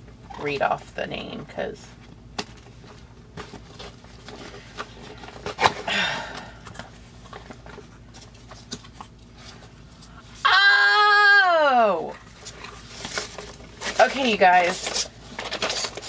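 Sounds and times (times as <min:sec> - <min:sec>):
woman exclaiming ooh: 0:10.4 - 0:12.1.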